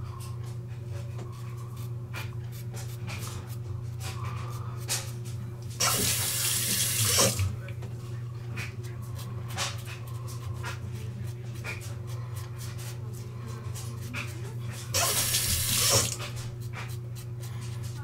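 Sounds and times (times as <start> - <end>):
steady low hum: 0.0 - 18.0
tap running: 5.6 - 8.0, 14.9 - 17.0
razor scraping stubble: 8.6 - 18.0.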